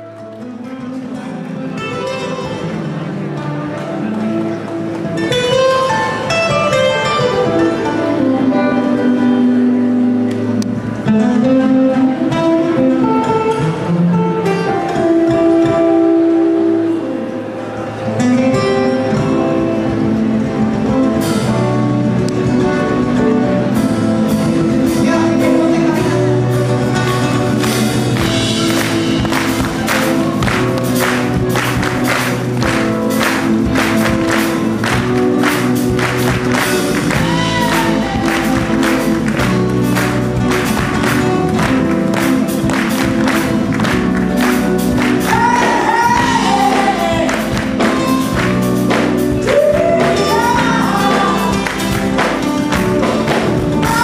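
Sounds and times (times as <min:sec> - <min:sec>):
jazz soul band playing: 0:00.0 - 0:54.0
drum kit beat: 0:24.2 - 0:54.0
woman singing: 0:37.1 - 0:38.8, 0:45.2 - 0:47.9, 0:49.4 - 0:52.0, 0:53.7 - 0:54.0.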